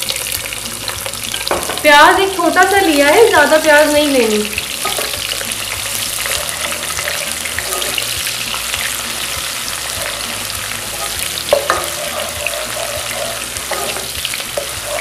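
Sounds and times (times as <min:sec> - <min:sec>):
onions sizzling in oil: 0:00.0 - 0:15.0
spatula knocking against pan: 0:10.0 - 0:15.0.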